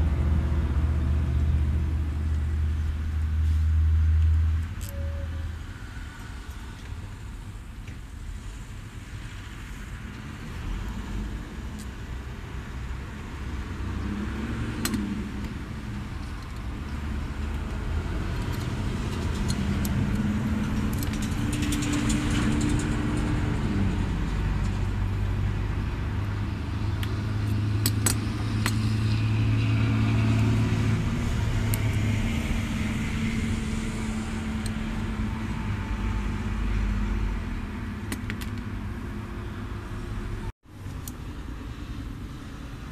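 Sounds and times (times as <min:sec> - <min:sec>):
vehicle engines running: 0:00.0 - 0:42.9
cable ties and tool rattling: 0:16.1 - 0:23.6.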